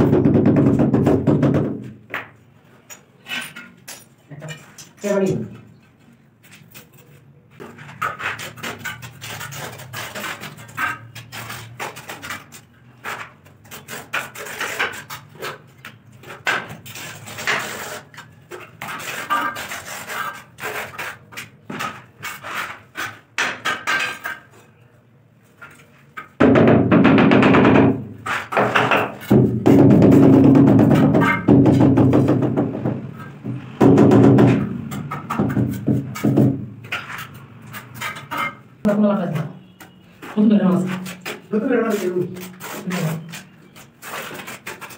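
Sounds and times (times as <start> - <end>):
trowel scraping mortar: 6.5 - 24.5, 34.8 - 38.6, 40.6 - 44.9.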